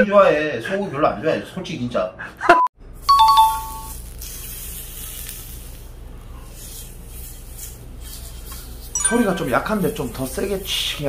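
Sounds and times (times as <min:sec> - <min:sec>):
two-note chime: 0:03.1 - 0:03.9, 0:09.0 - 0:10.0
beef sizzling on a grill pan: 0:03.9 - 0:08.8.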